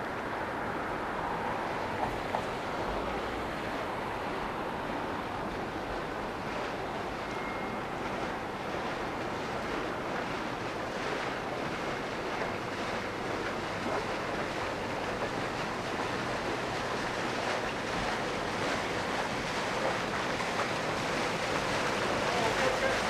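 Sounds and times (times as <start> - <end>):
motorboat engine and wake: 0.0 - 23.0.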